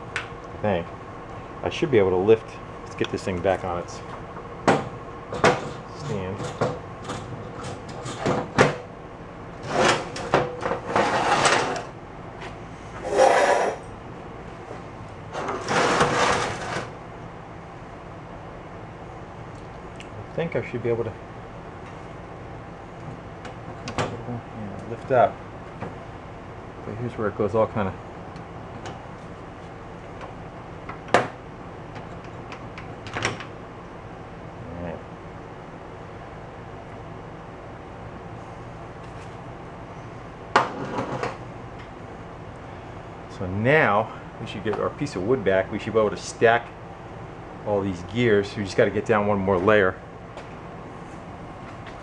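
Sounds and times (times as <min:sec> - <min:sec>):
low steady hum: 0:00.0 - 0:52.0
metal engine case scraping: 0:09.6 - 0:11.9, 0:12.9 - 0:13.9, 0:15.3 - 0:17.0.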